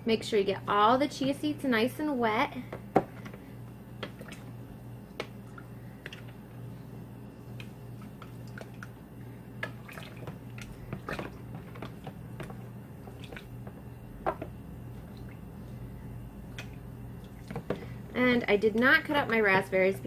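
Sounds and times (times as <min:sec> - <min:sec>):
faint low hum: 0:00.0 - 0:20.0
soft wet squishing: 0:03.2 - 0:18.1.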